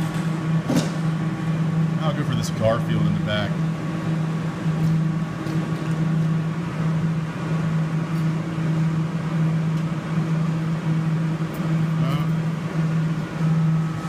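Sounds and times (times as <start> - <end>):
claw machine humming: 0.0 - 14.0.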